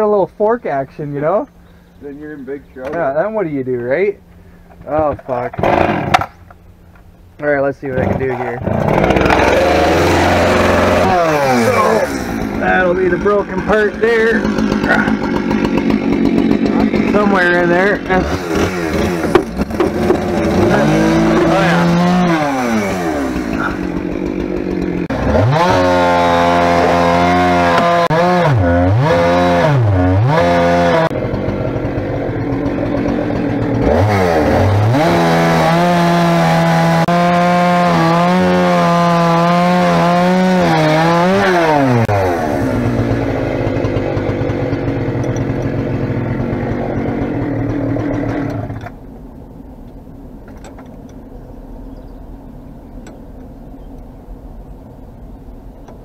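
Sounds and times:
engine revving: 5.4s - 6.4s, 7.9s - 49.0s.

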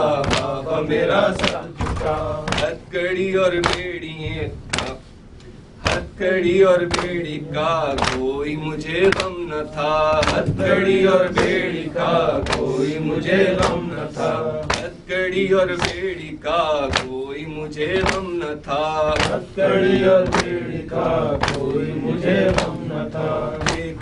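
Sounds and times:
man chanting a lament: 5.8s - 24.0s.

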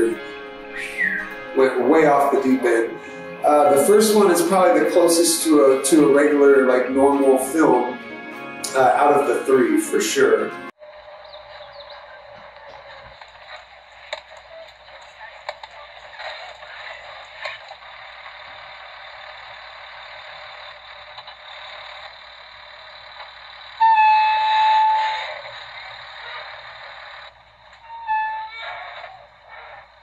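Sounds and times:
school bus horn blast: 0.0s - 10.7s, 23.8s - 25.5s
noisy background: 0.0s - 18.3s.

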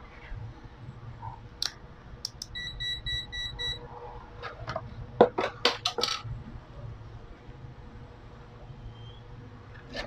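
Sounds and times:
short electronic beeps: 2.5s - 3.8s.

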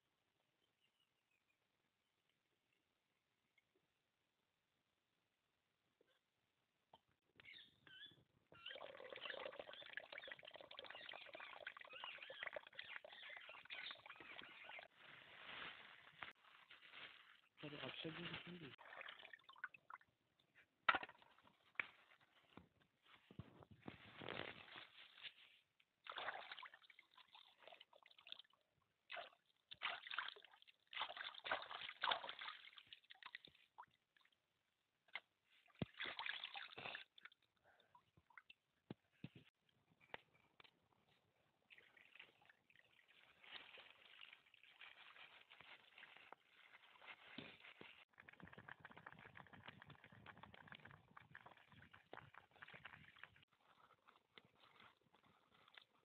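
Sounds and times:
birds chirping: 7.4s - 15.0s
water sloshing and pouring: 8.5s - 20.2s, 23.4s - 34.5s, 35.1s - 38.6s, 41.5s - 56.0s
hands splashing in water: 29.1s - 33.8s, 35.1s - 37.4s
rice swirled in water in metal pot: 48.0s - 56.0s.

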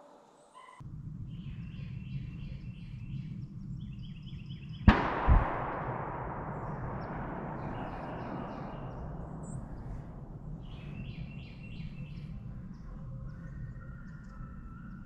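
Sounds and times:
small birds chirping: 0.3s - 5.8s, 6.5s - 15.0s
low steady rumble: 0.8s - 13.4s
gunshot echo: 4.9s - 12.0s.

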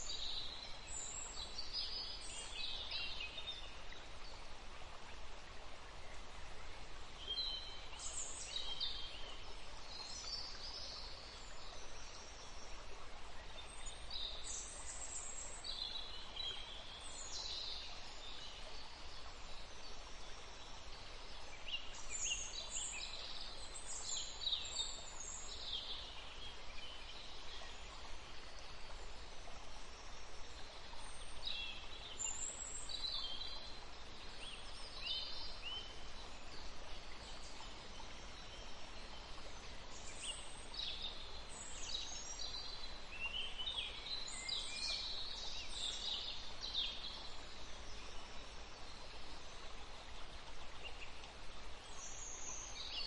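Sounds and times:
faint steady hiss: 0.0s - 53.0s.

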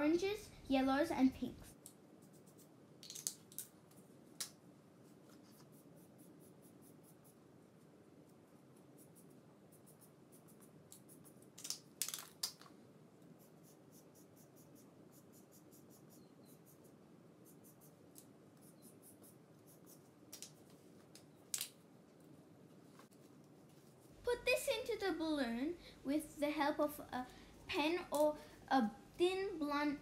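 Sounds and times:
plastic markers clicking and knocking: 3.0s - 3.7s, 10.9s - 12.7s, 20.3s - 20.6s.

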